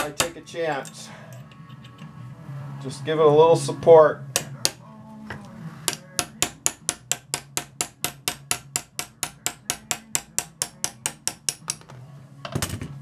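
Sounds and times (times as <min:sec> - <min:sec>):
hammer tapping metal punch: 0:00.0 - 0:02.1, 0:04.3 - 0:04.8, 0:05.9 - 0:11.9.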